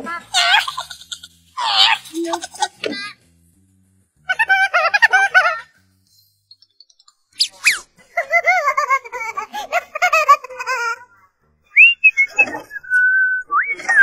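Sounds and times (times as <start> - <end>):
warbling squeaky tones: 6.6 - 7.9.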